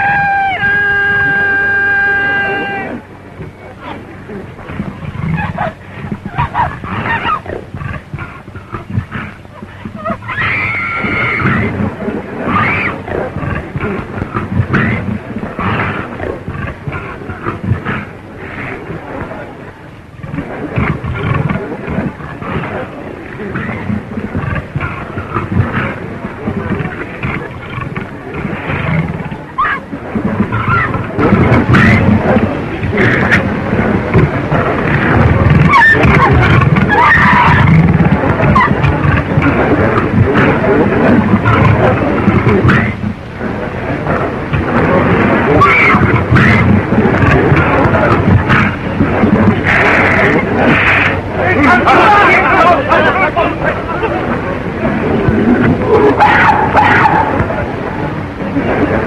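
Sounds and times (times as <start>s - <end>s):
film soundtrack hiss: 0.0s - 59.0s
low roaring rumble: 0.0s - 59.0s
big cat snarling and growling: 3.8s - 19.4s, 20.2s - 52.4s
animal screeching calls: 10.0s - 11.7s, 12.5s - 13.0s, 35.6s - 37.8s, 45.6s - 46.6s.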